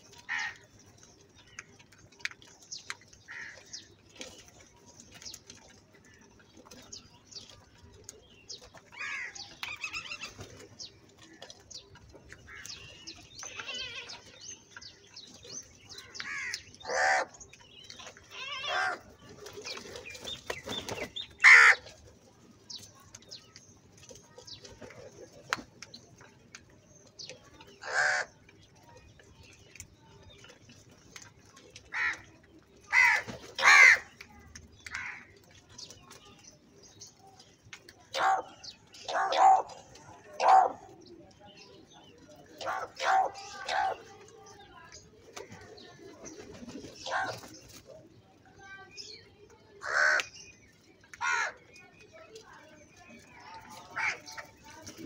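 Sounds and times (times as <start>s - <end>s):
crows cawing: 0.3s - 0.6s, 3.3s - 3.6s, 16.2s - 17.3s, 21.4s - 21.8s, 27.8s - 28.3s, 32.9s - 34.1s, 34.9s - 35.3s, 49.8s - 50.3s, 51.2s - 51.6s, 54.0s - 54.4s
faint pecking clicks: 34.0s - 39.1s.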